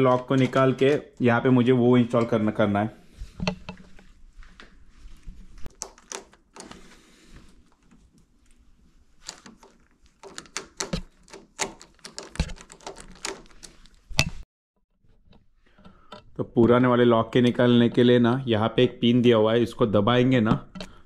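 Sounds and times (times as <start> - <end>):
door knob lock clicking: 5.7 - 6.8, 9.3 - 14.4.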